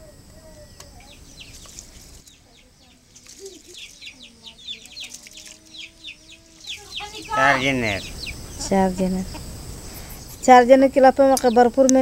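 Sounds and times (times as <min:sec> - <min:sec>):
faint low bird call: 0:00.0 - 0:10.5
birds chirping: 0:00.0 - 0:12.0.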